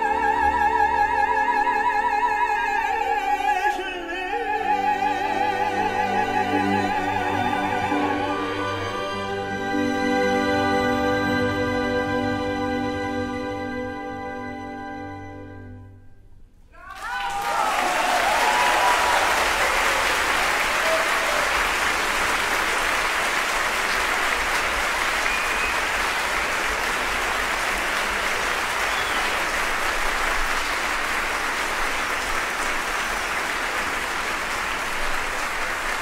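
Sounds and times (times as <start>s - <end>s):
audience applauding: 16.8s - 36.0s.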